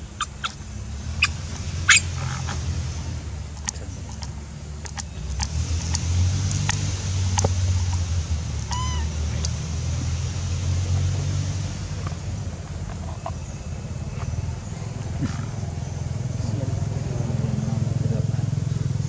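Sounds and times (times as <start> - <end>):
monkey call rising and falling: 1.2 - 2.6, 8.6 - 9.4.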